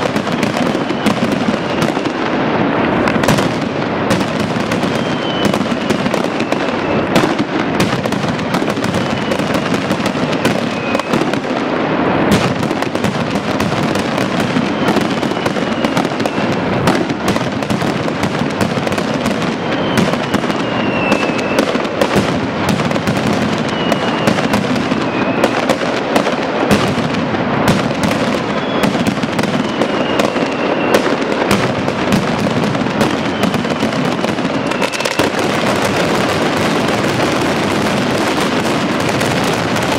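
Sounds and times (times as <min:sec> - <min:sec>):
firecrackers bursting: 0:00.0 - 0:39.9
short falling whistles: 0:05.0 - 0:05.6, 0:19.8 - 0:21.6, 0:23.7 - 0:24.3, 0:28.5 - 0:28.9, 0:29.6 - 0:31.0.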